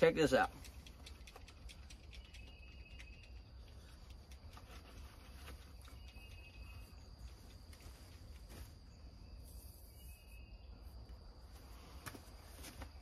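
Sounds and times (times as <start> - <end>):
insect trill: 5.1 - 12.0.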